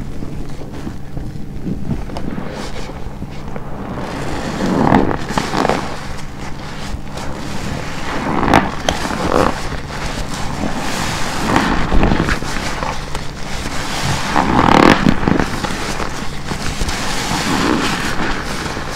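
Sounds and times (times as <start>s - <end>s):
foam crackling: 0.0s - 18.9s
wet sponge squelching: 1.6s - 18.9s.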